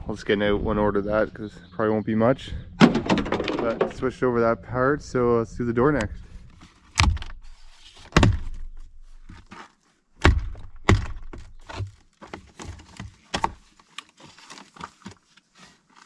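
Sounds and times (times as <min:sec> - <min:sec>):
knocks and clicks of door parts: 0:02.8 - 0:04.1.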